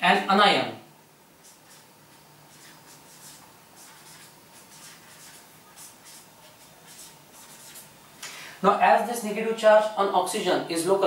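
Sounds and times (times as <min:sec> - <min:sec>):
marker pen on whiteboard: 0:01.2 - 0:08.0.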